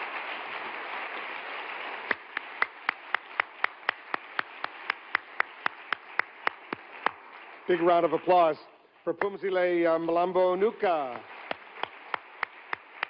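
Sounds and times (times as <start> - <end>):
large audience applauding: 0.0 - 13.0
loud single claps: 2.1 - 7.4, 11.1 - 13.0.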